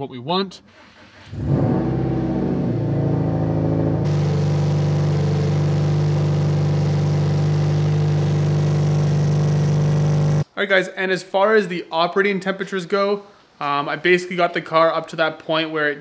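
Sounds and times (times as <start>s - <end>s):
car engine starting and idling: 0.7s - 10.4s.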